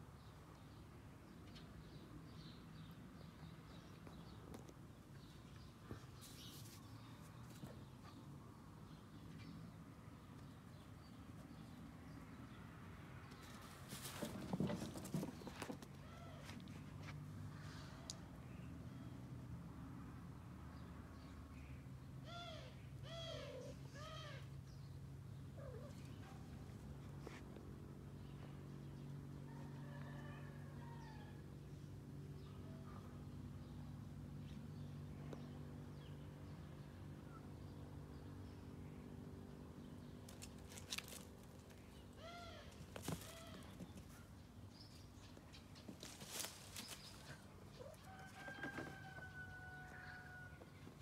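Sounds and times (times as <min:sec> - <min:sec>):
soft scuffs and rustles: 0:45.8 - 0:47.5.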